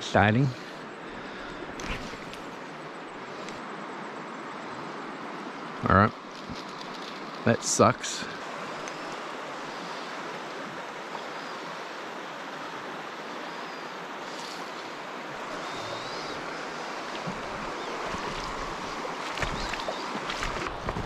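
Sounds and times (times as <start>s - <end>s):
river water rushing over stones: 4.5s - 21.0s.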